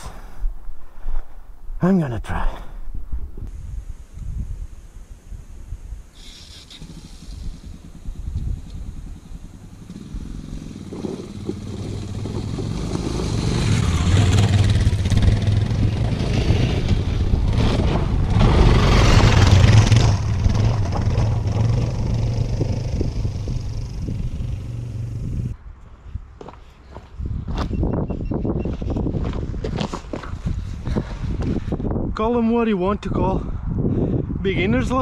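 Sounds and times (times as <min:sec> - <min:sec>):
motorcycle engine revving hard: 0:06.6 - 0:25.5.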